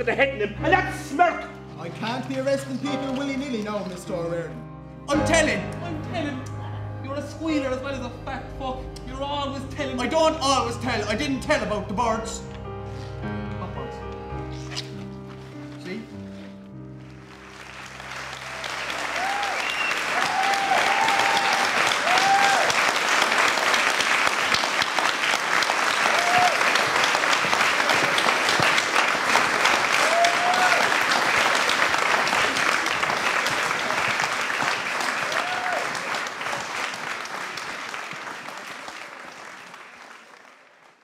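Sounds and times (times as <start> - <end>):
audience applauding: 17.0 - 41.0
crowd cheering: 17.2 - 41.0.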